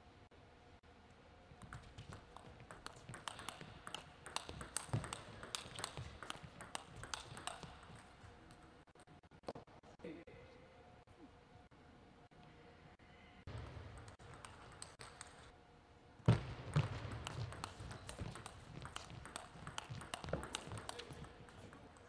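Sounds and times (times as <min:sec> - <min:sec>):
table tennis ball clicks: 0:01.6 - 0:08.1, 0:14.0 - 0:15.5, 0:16.7 - 0:22.0.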